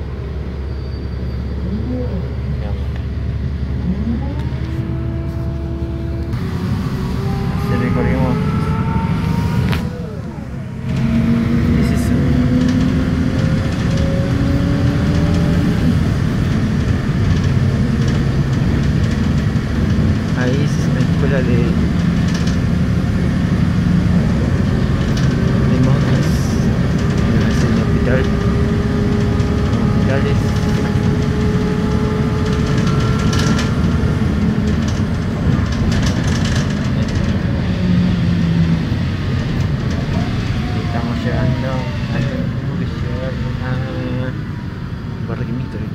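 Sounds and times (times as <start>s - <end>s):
engine and road rumble: 0.0s - 45.9s
rattling clicks: 32.4s - 34.0s, 34.6s - 37.5s.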